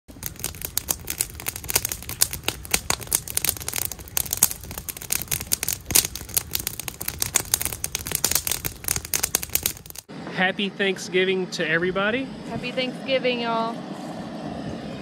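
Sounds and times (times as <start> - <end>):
campfire crackling and popping: 0.0 - 10.1.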